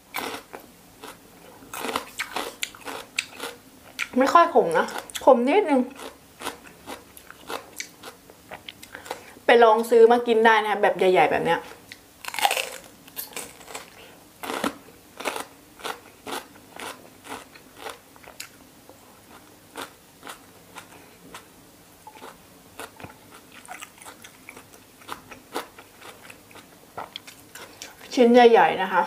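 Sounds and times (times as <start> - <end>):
person chewing crunchy food: 0.1 - 4.2, 5.9 - 9.4, 11.9 - 18.6, 19.2 - 21.5, 22.1 - 28.1.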